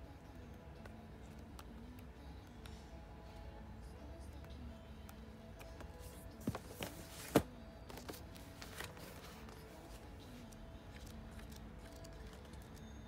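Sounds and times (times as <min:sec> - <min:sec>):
pages rustling: 0:06.0 - 0:10.0
book slapping down: 0:06.4 - 0:09.2.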